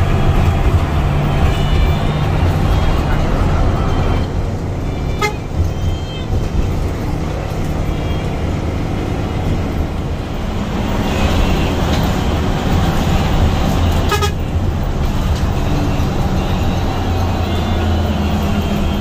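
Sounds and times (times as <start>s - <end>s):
bus engine running: 0.0s - 19.0s
horn toot: 13.9s - 14.4s.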